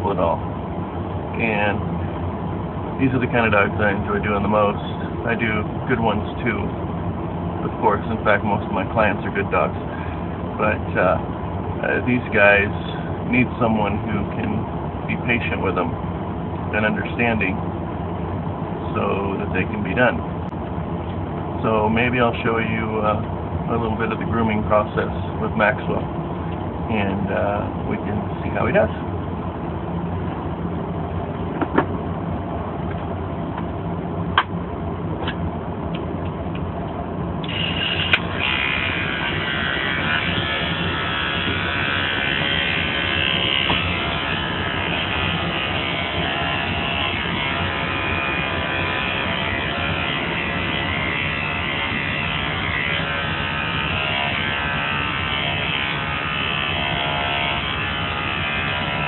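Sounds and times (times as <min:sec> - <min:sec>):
steady low hum: 0:00.0 - 0:59.0
electric clippers buzzing: 0:37.4 - 0:59.0.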